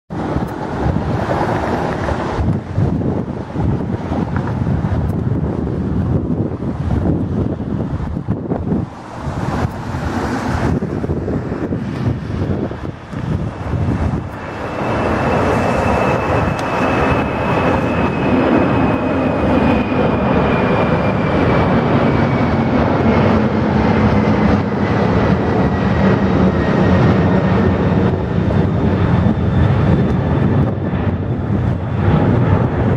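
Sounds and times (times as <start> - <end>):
jet engines at takeoff: 0.1 - 32.9
high whine falling in pitch: 8.2 - 24.0.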